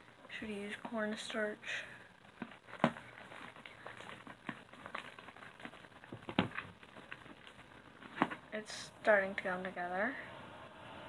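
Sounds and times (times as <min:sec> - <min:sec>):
slime crackling and popping: 0:02.1 - 0:08.6.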